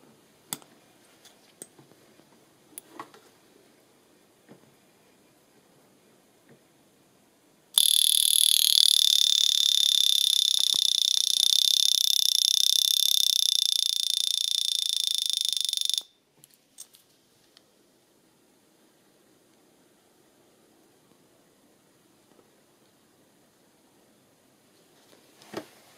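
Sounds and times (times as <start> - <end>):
alarm watch buzzing: 7.8 - 16.2.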